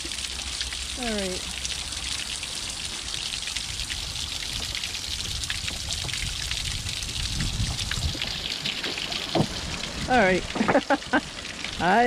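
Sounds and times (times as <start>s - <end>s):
water trickling onto rocks: 0.0s - 12.0s.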